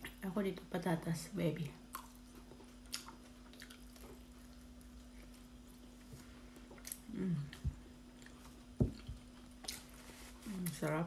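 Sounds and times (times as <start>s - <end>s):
steady low hum: 0.0s - 11.0s
person eating with mouth clicks: 1.9s - 4.2s, 6.7s - 9.8s
person humming mmm: 6.9s - 7.8s.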